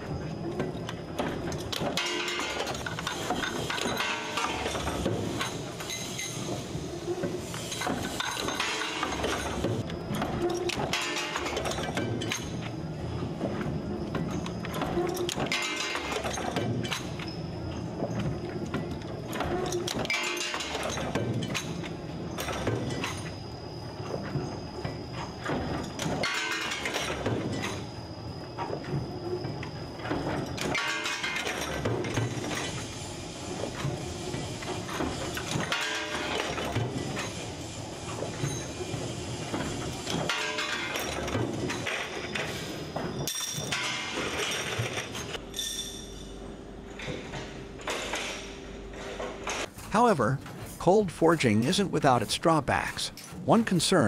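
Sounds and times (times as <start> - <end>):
forging press metallic clatter: 1.2 - 6.6, 7.4 - 12.7, 13.4 - 17.4, 18.1 - 23.3, 39.5 - 46.2.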